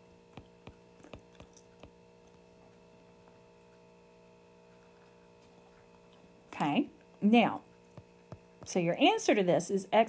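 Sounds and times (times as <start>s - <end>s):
faint electrical hum: 0.0s - 10.0s
stylus tapping on screen: 0.3s - 2.0s.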